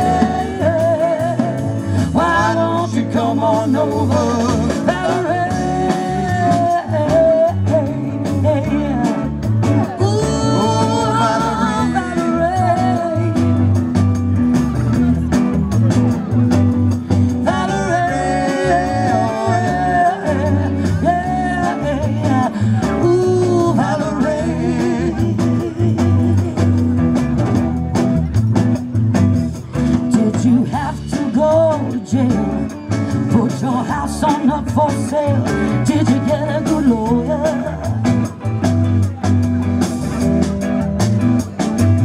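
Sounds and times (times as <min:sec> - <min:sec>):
woman singing: 0:00.0 - 0:01.6, 0:02.2 - 0:13.5, 0:30.1 - 0:37.9
drum kit: 0:00.0 - 0:42.0
electric guitars: 0:00.0 - 0:42.0.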